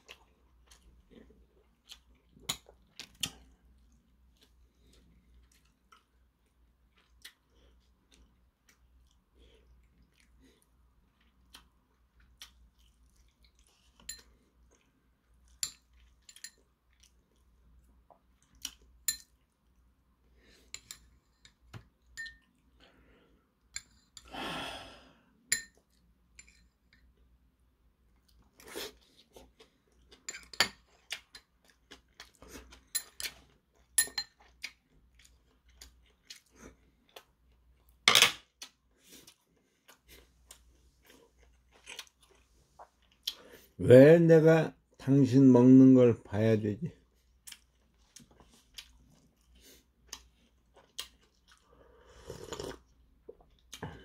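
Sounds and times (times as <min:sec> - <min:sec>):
chewing: 0:00.0 - 0:19.8, 0:28.1 - 0:38.0, 0:38.6 - 0:43.7, 0:47.1 - 0:54.0.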